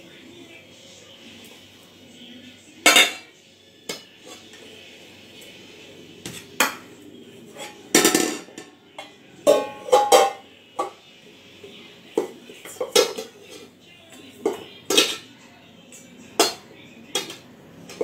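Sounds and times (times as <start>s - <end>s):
pot lid clanking: 9.4s - 10.4s.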